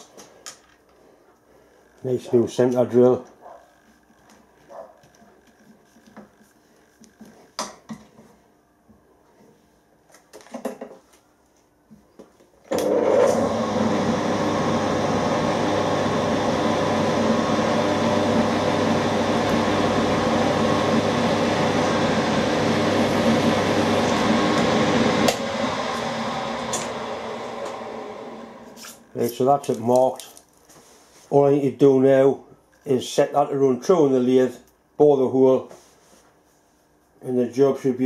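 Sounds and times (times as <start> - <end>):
milling machine spindle motor: 12.7 - 29.0.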